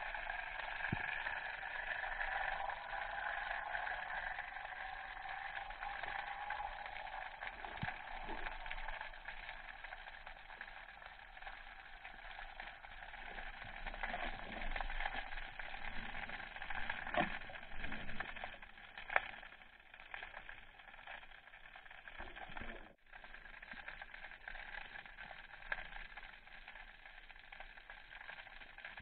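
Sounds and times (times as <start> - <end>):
underwater hiss: 0.0 - 10.1.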